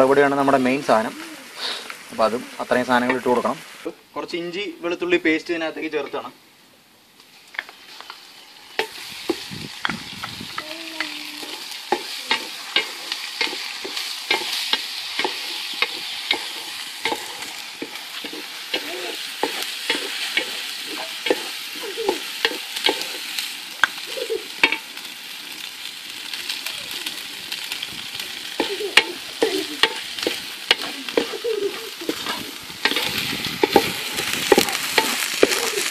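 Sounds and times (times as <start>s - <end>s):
food sizzling in a pan: 0.0s - 6.3s, 7.2s - 35.9s
spoon scraping and knocking pan: 8.8s - 23.2s, 24.6s - 24.8s, 28.6s - 35.9s.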